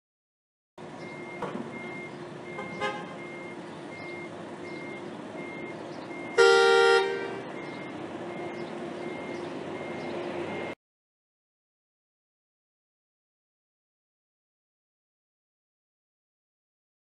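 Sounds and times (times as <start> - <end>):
vehicle horns honking: 2.5 - 3.5, 6.2 - 7.8.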